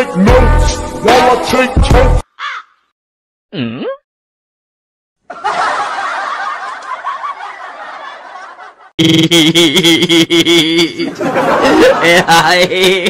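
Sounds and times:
people laughing: 5.3 - 13.0.

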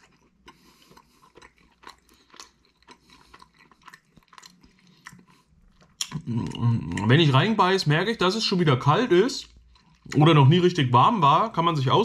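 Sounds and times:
person chewing crunchy food: 0.0 - 7.5, 9.4 - 10.6.

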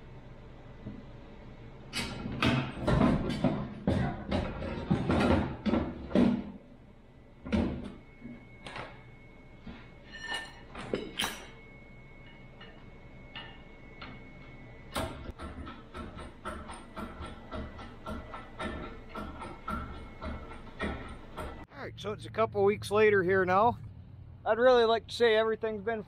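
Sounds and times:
metal box clanking and knocking: 2.4 - 6.5
metallic ring: 8.0 - 14.4.

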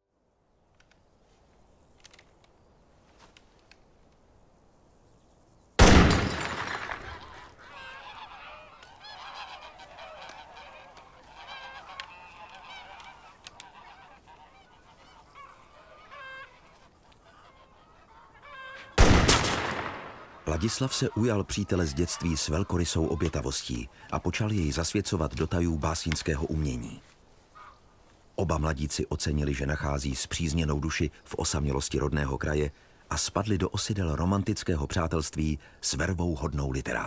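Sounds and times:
gunshot echoing: 5.8 - 7.4, 19.0 - 20.5
flock of birds calling: 5.8 - 33.0.

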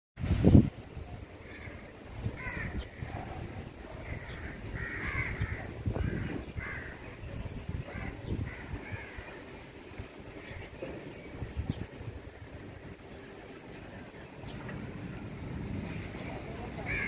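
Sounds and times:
crows cawing: 1.4 - 3.1, 4.0 - 7.0, 7.9 - 9.5.

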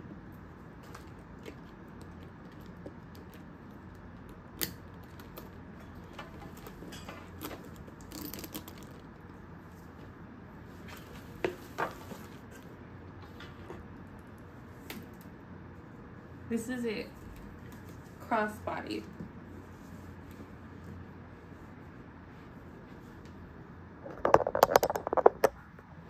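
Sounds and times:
handbag clicks and rustles: 0.8 - 9.3.

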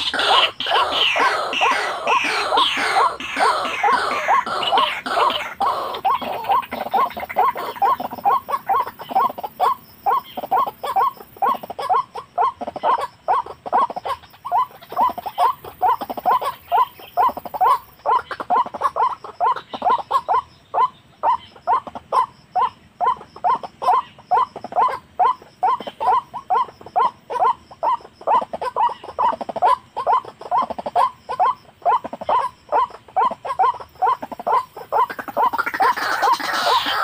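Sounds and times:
waterhen calling: 0.0 - 37.0.

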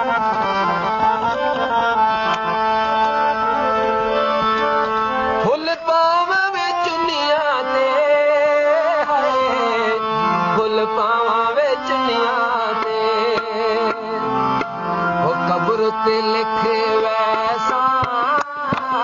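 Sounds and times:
tabla: 0.0 - 19.0
person singing folk song: 5.4 - 14.6, 15.2 - 19.0.

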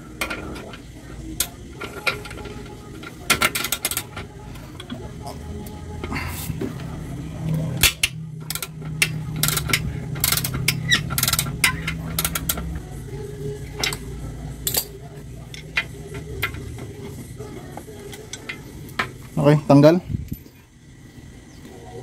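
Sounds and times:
steady low hum: 0.0 - 22.0
metal tools clinking: 7.8 - 12.8, 13.7 - 17.2
ratchet wrench clicking: 7.8 - 12.9, 13.6 - 17.1.

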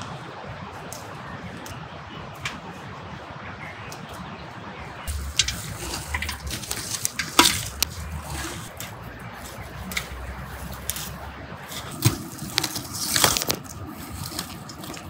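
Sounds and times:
water splashing: 5.0 - 15.0
clinks and knocks: 5.1 - 9.0.

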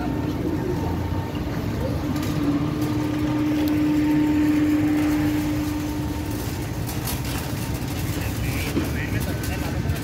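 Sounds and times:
steady hum: 0.0 - 9.2
shopping cart wheels rattling: 0.0 - 10.0.

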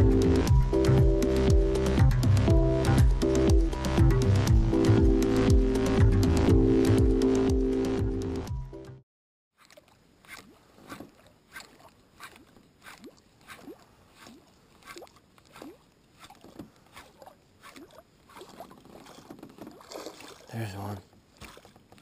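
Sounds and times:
small waves lapping against boat hull: 9.6 - 22.0.

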